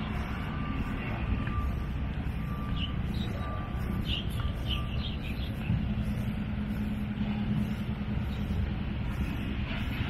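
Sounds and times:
short electronic beeps: 0:00.0 - 0:05.7
birds chirping: 0:00.0 - 0:10.0
low engine rumble: 0:00.0 - 0:10.0
low hum: 0:00.0 - 0:10.0.

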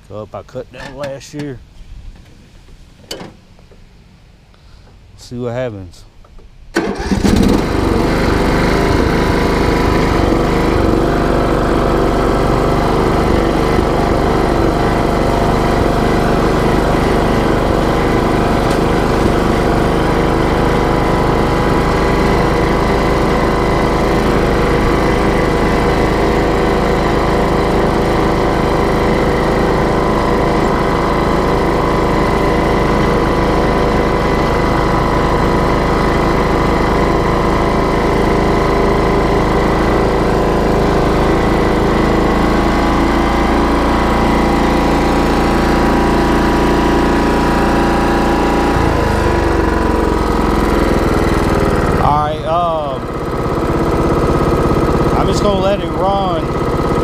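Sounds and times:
riding lawn mower engine running: 0:00.0 - 0:04.0, 0:06.2 - 0:57.0.

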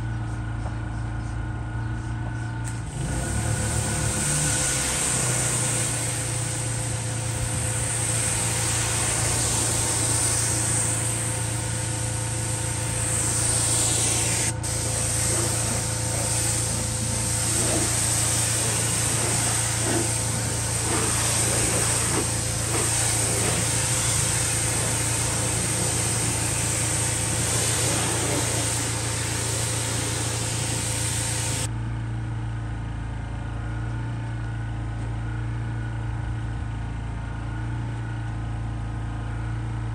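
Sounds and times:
pressure washer spraying water: 0:02.7 - 0:31.7
washer motor humming: 0:02.7 - 0:31.7.

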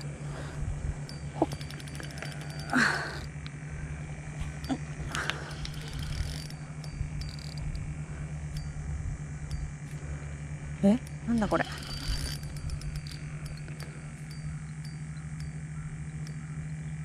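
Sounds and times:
reel ticking while cranked: 0:00.0 - 0:17.0
steady low hum: 0:00.0 - 0:17.0
fishing reel drag clicks: 0:01.0 - 0:03.6, 0:04.4 - 0:10.2, 0:11.0 - 0:16.9.

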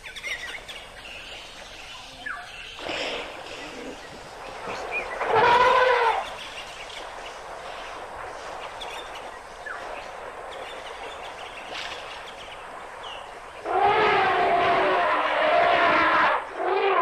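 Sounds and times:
outdoor ambience: 0:00.0 - 0:17.0
loud animal call falling in pitch: 0:05.3 - 0:06.2, 0:13.7 - 0:17.0.

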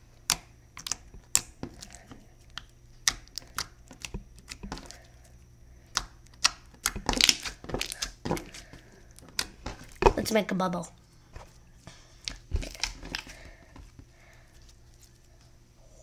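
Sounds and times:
slime clicking: 0:00.3 - 0:01.9, 0:05.9 - 0:08.1.

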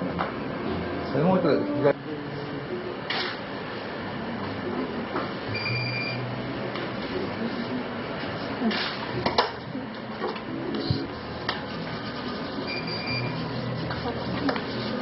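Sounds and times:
steady background noise: 0:00.0 - 0:15.0
high electronic beep: 0:05.5 - 0:06.2, 0:12.7 - 0:13.4.

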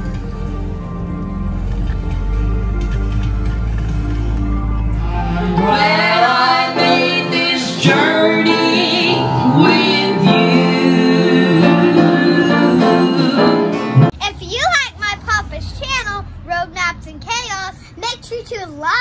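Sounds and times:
low rumble: 0:07.8 - 0:11.8.

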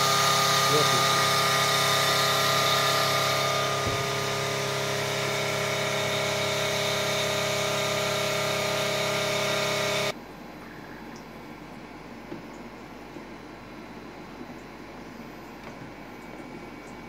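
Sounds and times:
coolant spray hissing: 0:00.0 - 0:10.1
machine tool humming: 0:00.0 - 0:10.2.

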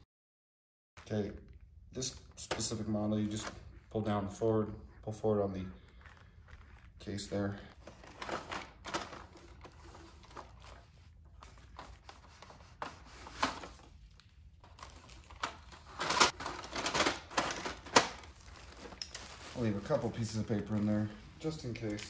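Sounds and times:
paper rustling and shuffling: 0:05.8 - 0:22.0.

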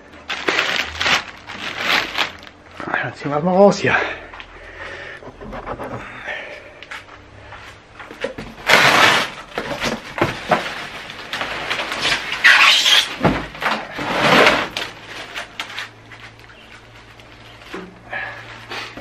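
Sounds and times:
plastic wrapping crinkling: 0:00.1 - 0:02.6, 0:08.6 - 0:13.0, 0:14.0 - 0:17.8.

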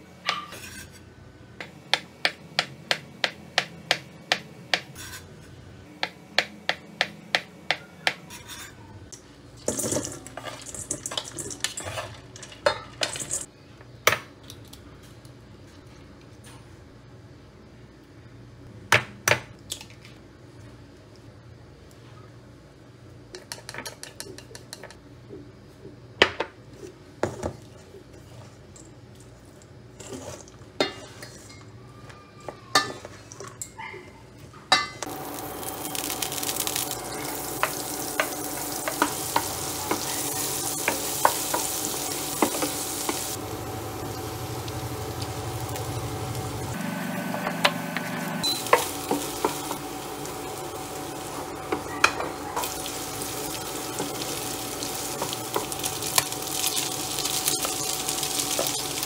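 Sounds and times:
butter sizzling in a pan: 0:35.1 - 0:46.8, 0:48.4 - 0:59.0.

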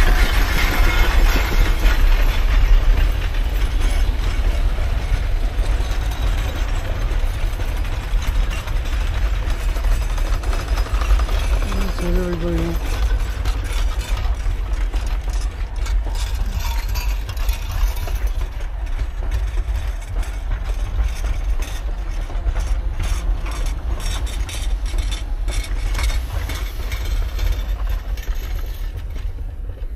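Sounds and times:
train coaches rumbling: 0:00.0 - 0:29.9
wheels clanking on rails: 0:00.0 - 0:29.9.

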